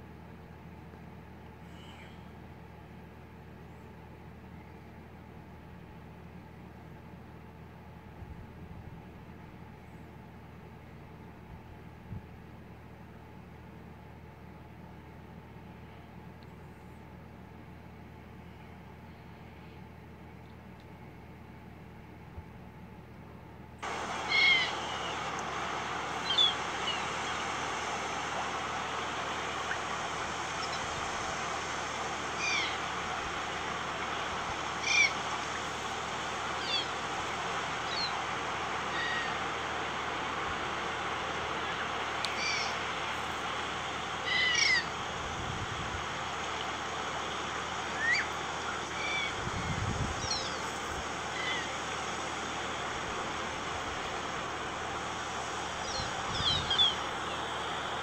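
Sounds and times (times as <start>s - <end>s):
small birds chirping: 23.8s - 40.2s, 41.0s - 45.1s, 46.0s - 58.0s
steady rushing hiss: 23.8s - 58.0s.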